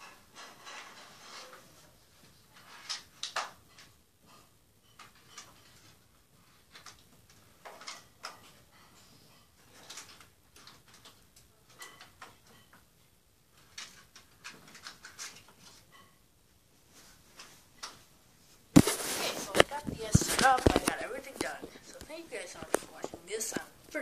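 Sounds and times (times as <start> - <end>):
small clicks and taps: 19.5 - 23.7.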